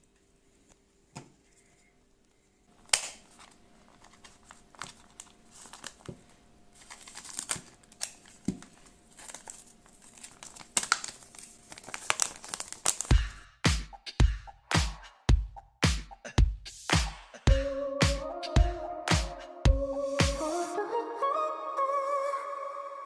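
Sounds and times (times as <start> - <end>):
plastic pouch crinkling: 3.1 - 13.1.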